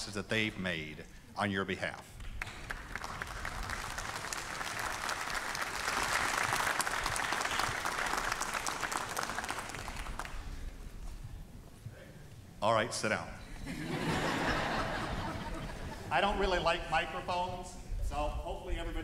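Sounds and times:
large crowd applauding: 2.2 - 10.6.

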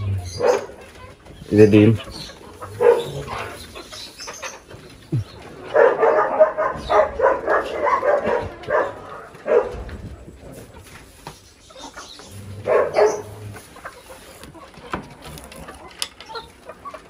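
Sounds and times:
dog barking: 0.3 - 0.8, 2.7 - 3.4, 5.7 - 9.9, 12.6 - 13.4.

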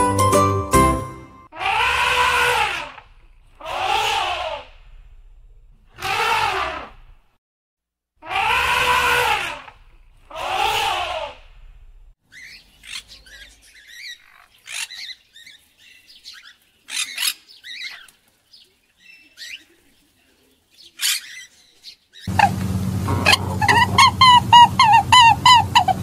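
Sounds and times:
elephant trumpeting: 1.5 - 3.0, 3.6 - 4.8, 6.0 - 6.9, 8.2 - 11.4, 22.3 - 26.0
macaw squawking: 12.3 - 15.2, 21.0 - 21.5, 22.2 - 26.0.

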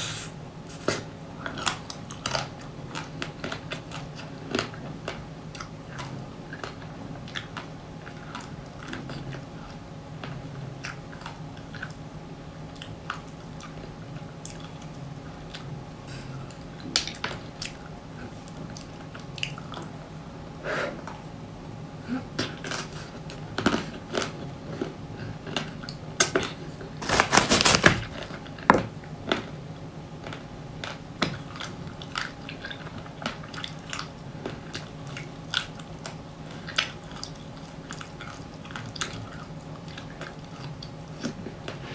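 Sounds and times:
faint steady hum: 0.0 - 41.9
crunchy biting and chewing: 22.4 - 28.4.

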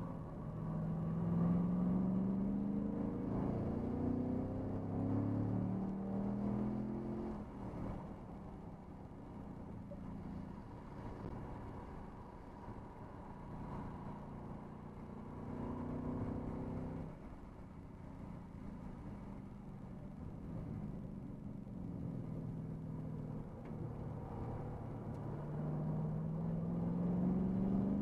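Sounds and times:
car engine accelerating: 0.0 - 8.0, 21.8 - 28.0.

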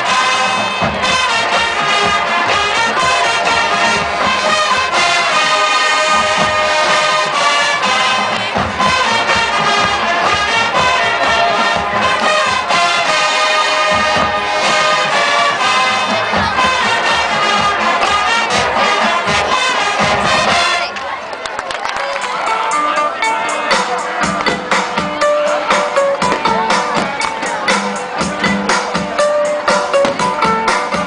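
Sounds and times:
percussion hits: 0.0 - 20.9, 22.6 - 31.0
held brass chords: 0.0 - 21.1
marching band playing: 0.0 - 21.2, 22.2 - 31.0.

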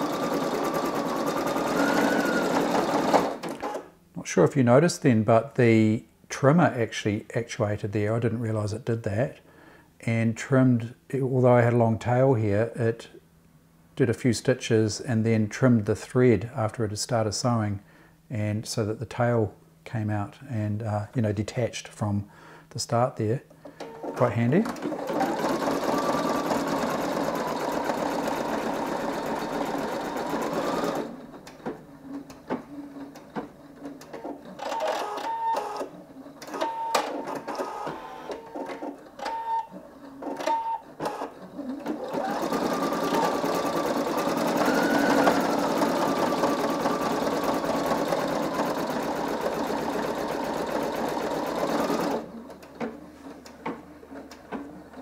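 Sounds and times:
embroidery machine stitching: 0.0 - 3.8, 23.8 - 55.0.

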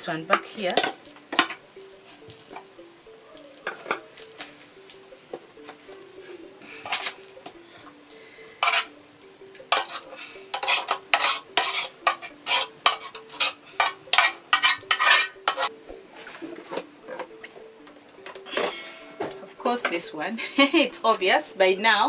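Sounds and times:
metal utensil scraping saucepan: 6.8 - 7.2, 8.6 - 8.9, 9.7 - 15.7.

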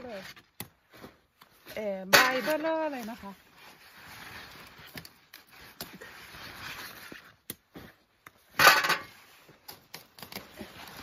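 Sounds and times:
leaves rustling: 0.0 - 11.0
stalks snapping: 9.7 - 11.0.

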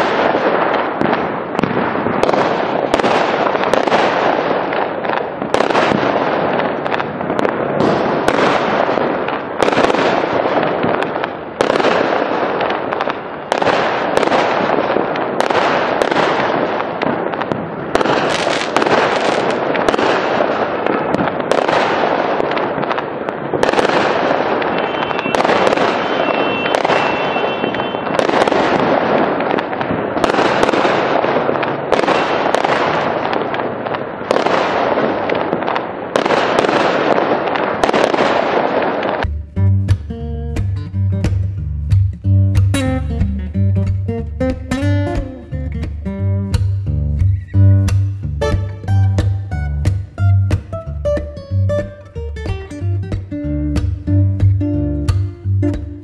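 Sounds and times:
firework crackle: 0.0 - 39.3
firework shell bursts: 23.6 - 29.6.

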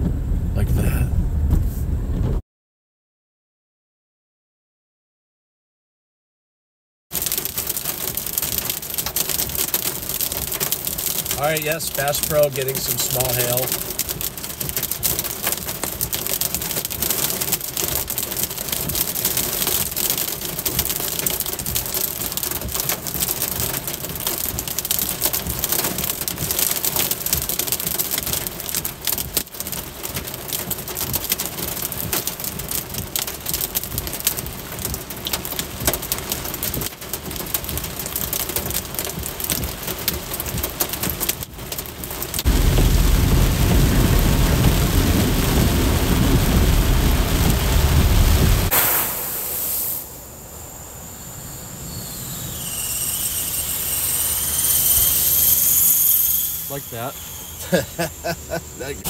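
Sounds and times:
rain and hail on vehicle roof: 7.1 - 48.7.

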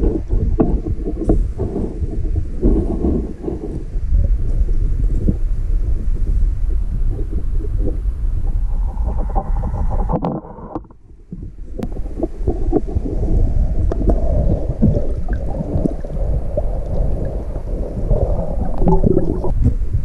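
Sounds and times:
underwater clicks and knocks: 0.0 - 5.4, 8.9 - 13.2, 18.6 - 19.8
underwater moving water rumble: 0.0 - 20.0.

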